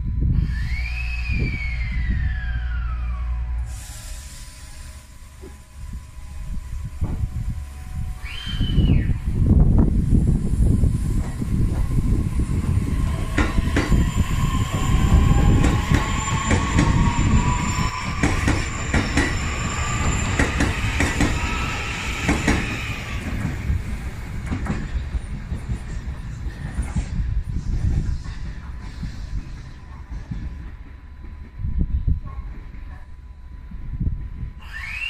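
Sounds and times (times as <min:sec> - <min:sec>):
train low rumble: 0:00.0 - 0:35.0
train motor whine rising: 0:00.2 - 0:25.4, 0:34.6 - 0:35.0.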